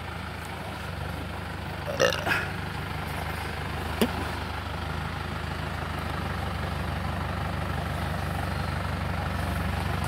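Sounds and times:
engine running at low revs: 0:00.0 - 0:10.0.

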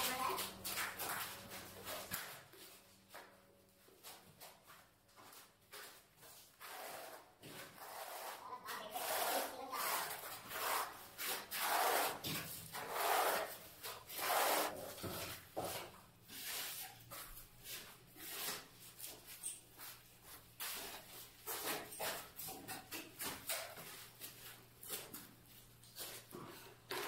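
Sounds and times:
sponge scraping over tile: 0:06.6 - 0:19.2.

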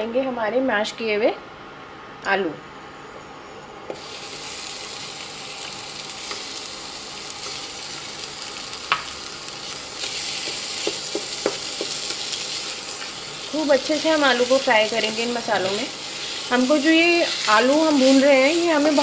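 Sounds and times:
potatoes frying in oil: 0:04.0 - 0:19.0.

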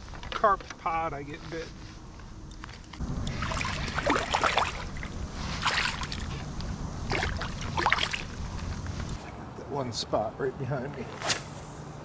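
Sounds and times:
fish splashing in water: 0:03.2 - 0:08.4.

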